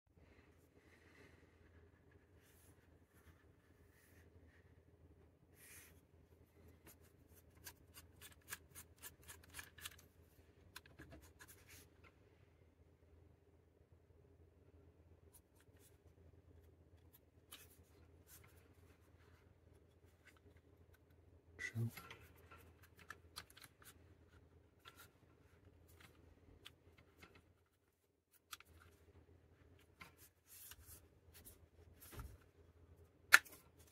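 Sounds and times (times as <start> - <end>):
small plastic clicks and scratches: 7.4 - 10.1.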